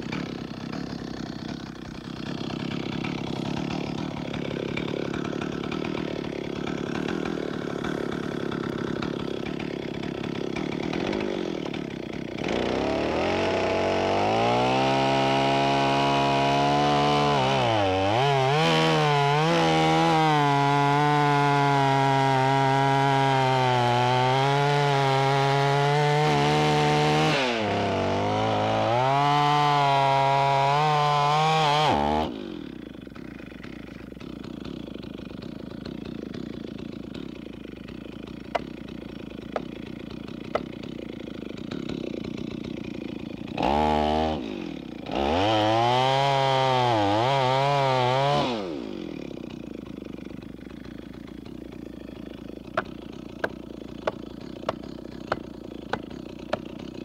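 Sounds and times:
chainsaw cutting a log: 0.0s - 57.0s.

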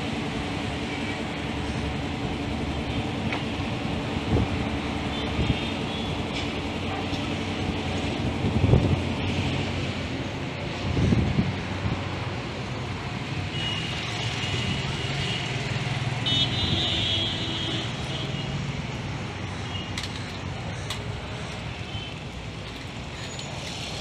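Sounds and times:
sharp clicks: 19.8s - 21.2s.

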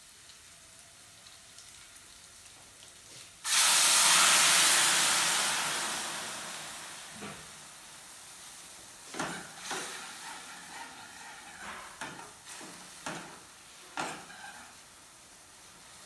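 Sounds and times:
food sizzling in a pan: 2.6s - 16.0s
utensil scraping a pan: 9.1s - 14.8s.

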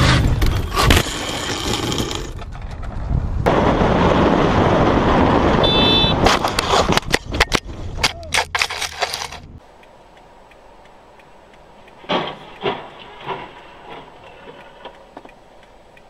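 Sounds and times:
rushing wind noise: 0.0s - 8.6s
motorcycle crash impacts and clatter: 12.0s - 14.6s.

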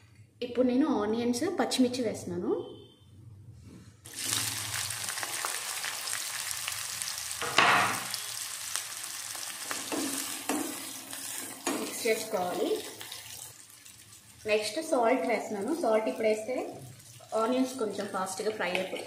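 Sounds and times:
onions sizzling in hot oil: 4.1s - 19.0s
spatula stirring against pan: 9.7s - 12.4s.

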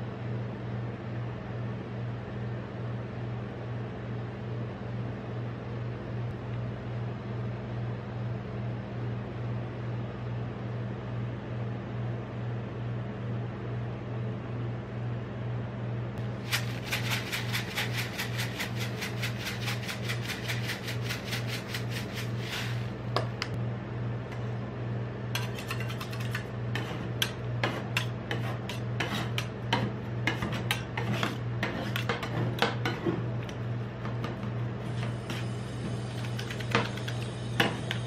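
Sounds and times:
steady low hum: 0.0s - 38.0s
sprinkles rattling: 16.3s - 23.0s
spatulas scraping steel plate: 25.4s - 33.2s.

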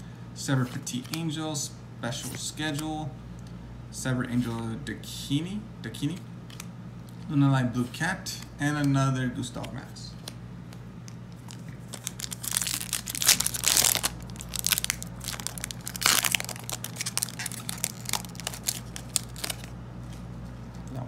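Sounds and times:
wrapper tearing and crinkling: 11.3s - 19.7s.

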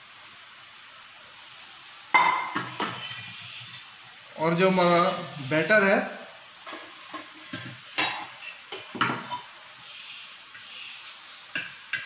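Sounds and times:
ladle scraping steel bowl: 2.8s - 3.9s.

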